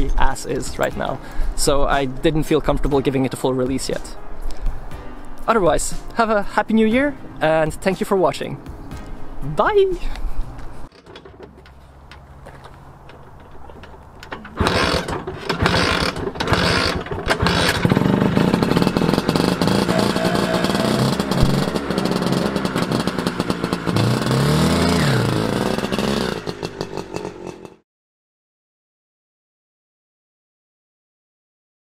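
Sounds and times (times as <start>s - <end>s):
scooter engine starting and revving: 12.4s - 27.8s.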